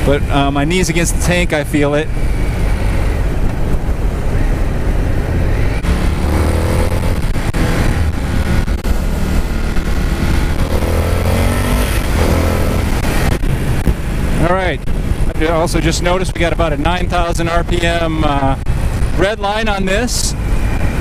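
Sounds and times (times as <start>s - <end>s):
wind rumble on microphone: 0.0s - 21.0s
motorcycle engine running: 1.3s - 16.8s.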